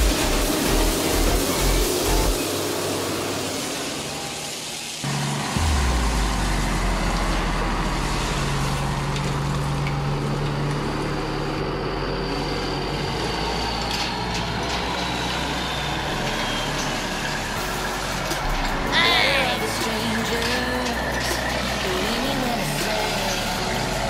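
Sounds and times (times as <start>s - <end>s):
toy diesel engine sound effect: 10.0s - 24.0s.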